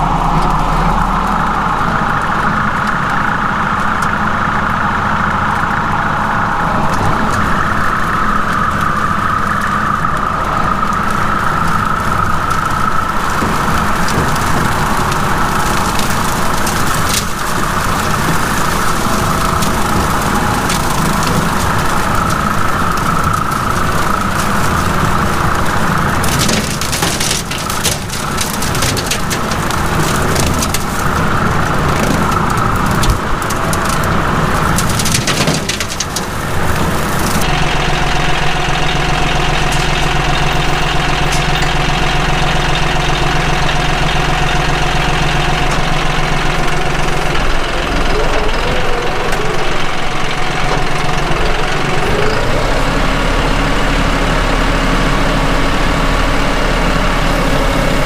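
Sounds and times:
tractor engine running: 0.0s - 58.0s
sticks and brush snapping: 8.5s - 37.5s
high whine: 36.3s - 58.0s.

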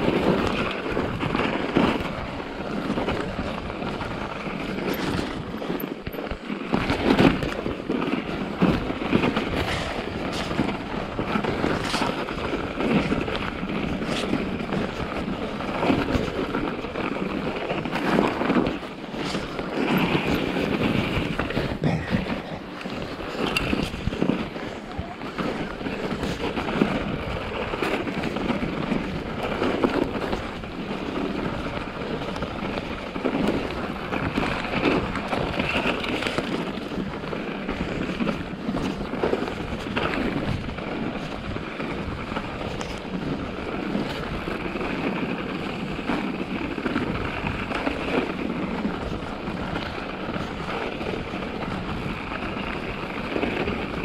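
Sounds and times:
bike knocks and rattles: 0.0s - 24.8s
bike tyres crunching snow: 0.0s - 54.0s
wind on microphone: 0.0s - 54.0s.

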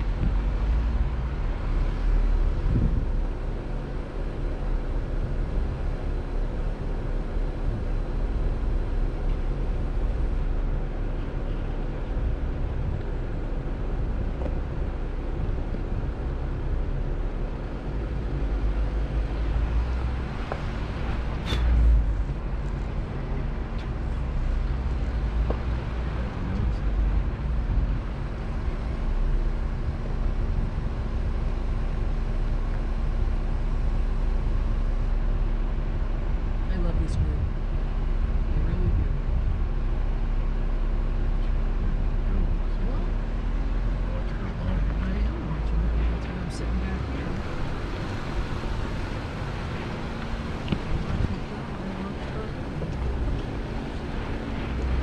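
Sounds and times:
wind noise: 0.0s - 42.2s, 46.8s - 55.0s
low rumble: 0.0s - 55.0s
vehicle engine hum: 0.0s - 55.0s.

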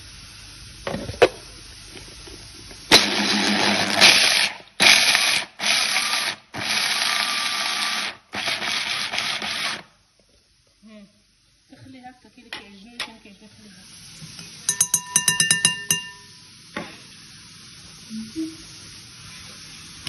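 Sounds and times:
food processor grinding: 2.9s - 9.9s.

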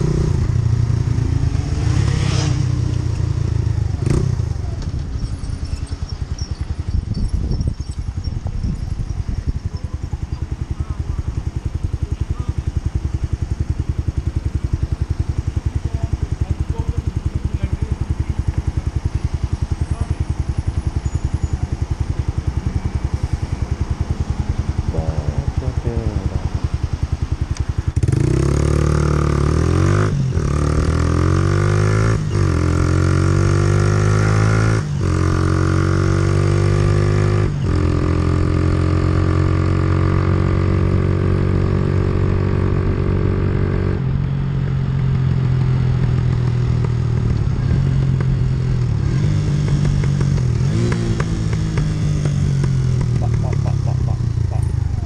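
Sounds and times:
motorcycle accelerating through gears: 0.0s - 55.0s
motorcycle engine idling: 3.2s - 30.6s, 40.6s - 55.0s.

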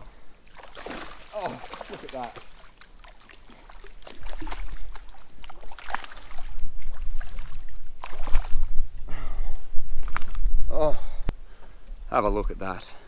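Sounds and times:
fish thrashing and splashing: 0.4s - 8.8s.

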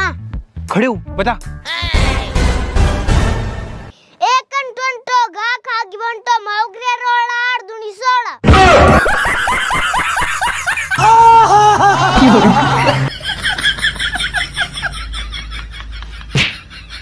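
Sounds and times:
canned laughter: 8.8s - 17.0s.

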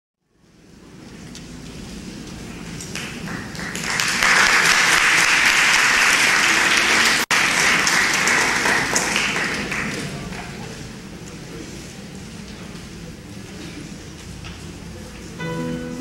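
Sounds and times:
audience applauding: 2.8s - 10.7s.

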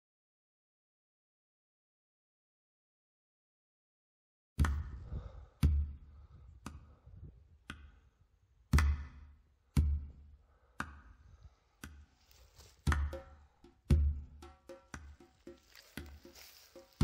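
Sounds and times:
footsteps on muddy ground: 12.2s - 12.9s, 15.3s - 17.0s.

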